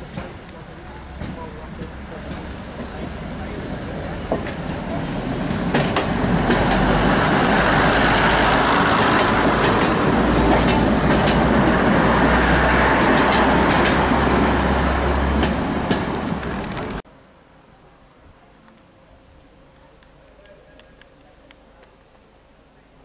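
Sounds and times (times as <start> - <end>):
train wheels clacking over rail joints: 0.0 - 14.7, 15.3 - 17.0
diesel train engines droning: 0.0 - 17.0.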